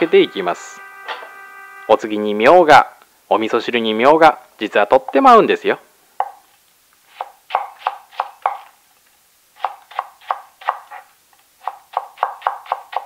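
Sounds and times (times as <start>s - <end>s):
knife chopping on cutting board: 7.2s - 8.7s, 11.6s - 13.0s.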